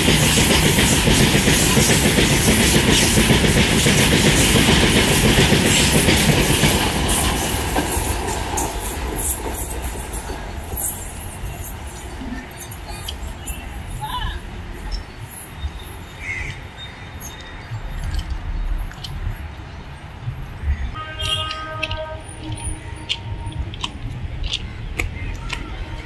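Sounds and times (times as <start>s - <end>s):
freight wagons rolling on track: 0.0s - 16.0s.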